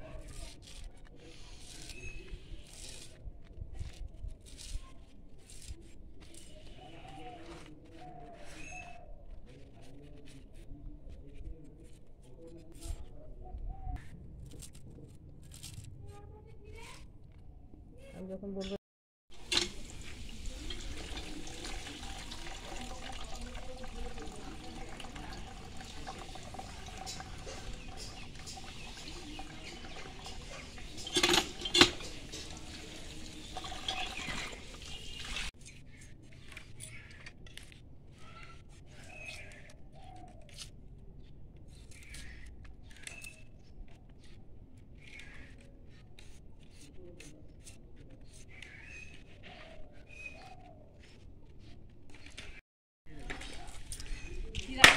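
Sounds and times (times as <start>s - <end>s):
water gushing and splashing: 19.3s - 35.5s.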